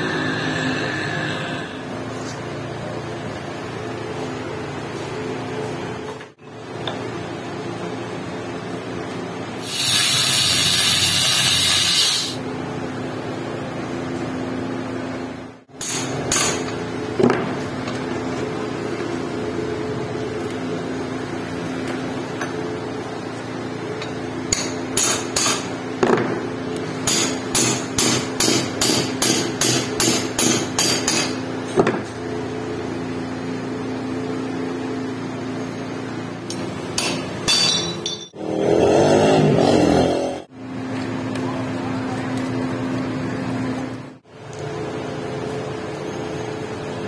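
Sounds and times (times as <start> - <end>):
hammer striking steel punch: 24.5 - 25.7, 27.0 - 31.4.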